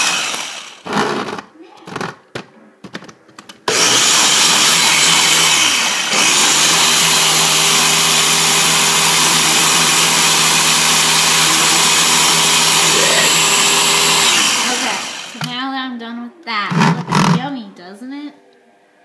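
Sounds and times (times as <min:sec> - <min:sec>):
blender motor running: 0:00.0 - 0:01.3, 0:03.7 - 0:15.5.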